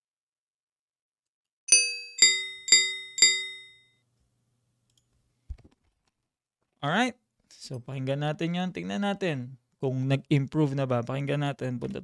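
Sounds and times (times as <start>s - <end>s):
sharp metallic dings: 1.7s - 3.9s.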